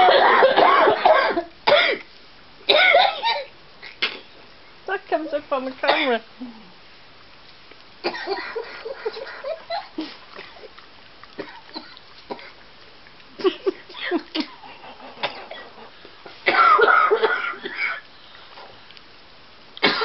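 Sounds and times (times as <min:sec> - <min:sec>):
dog chewing with wet smacking: 0:07.2 - 0:16.5.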